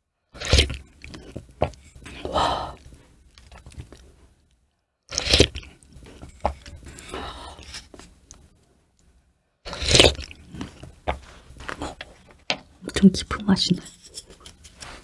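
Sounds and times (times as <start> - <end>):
sipping and slurping: 0.4 - 4.2, 5.1 - 8.5, 9.7 - 12.2.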